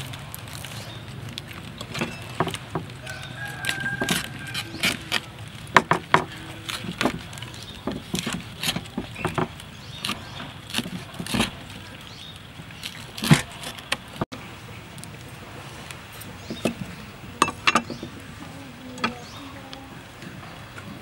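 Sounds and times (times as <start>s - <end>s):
cleaver chopping on wooden board: 5.7s - 11.6s.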